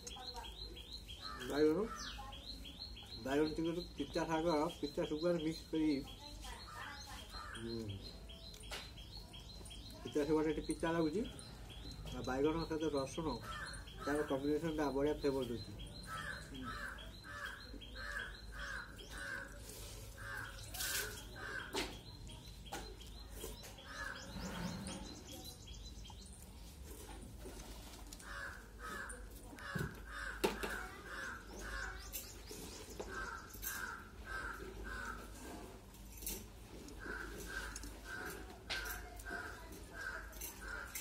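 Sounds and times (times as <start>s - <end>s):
crows cawing: 1.2s - 2.2s, 6.7s - 7.7s, 13.3s - 14.4s, 16.0s - 22.0s, 23.8s - 24.5s, 28.2s - 32.3s, 33.0s - 35.7s, 36.8s - 41.0s.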